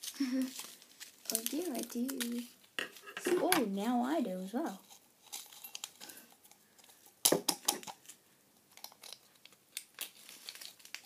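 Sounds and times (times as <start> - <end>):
paper sachets crinkling and tearing: 0.0 - 2.7, 8.8 - 11.0.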